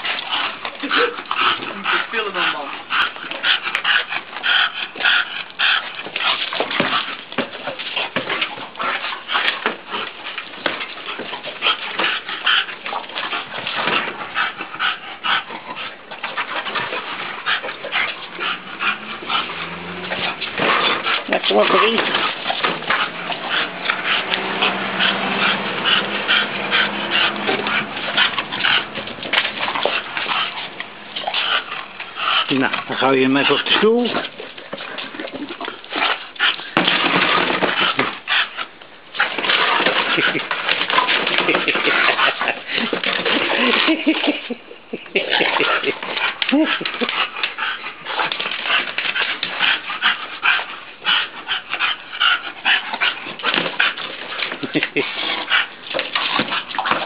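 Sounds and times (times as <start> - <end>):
dog panting: 0.0 - 57.0.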